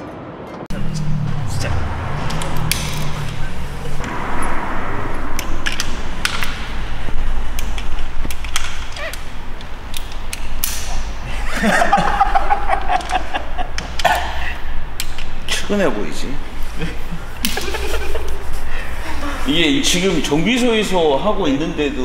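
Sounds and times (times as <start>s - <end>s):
low steady hum: 0.7s - 15.1s.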